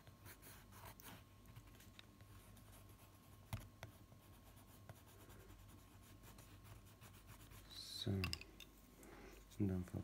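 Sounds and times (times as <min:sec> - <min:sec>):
pencil scratching on wood: 0:00.0 - 0:07.7.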